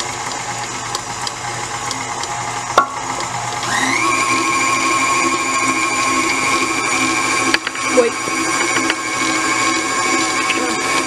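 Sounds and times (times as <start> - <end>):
electric stand mixer whirring: 0.0 - 11.0.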